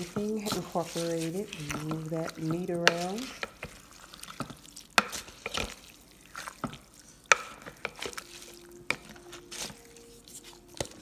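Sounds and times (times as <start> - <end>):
wet squelching of ground meat: 0.0 - 11.0.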